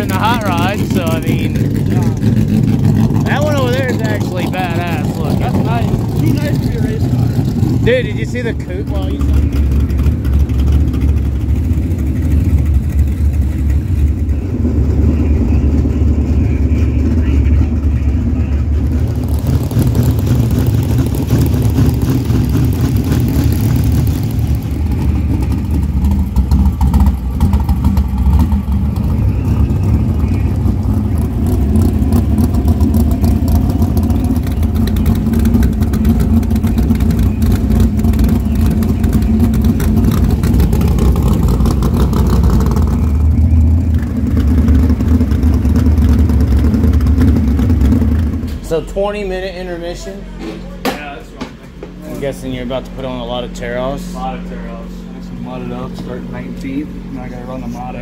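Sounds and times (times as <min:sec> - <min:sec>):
race car engines revving: 0:00.0 - 0:58.0.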